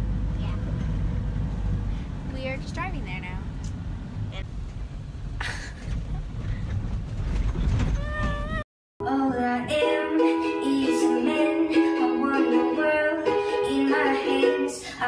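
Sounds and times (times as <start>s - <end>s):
road rumble inside a car: 0.0s - 8.6s.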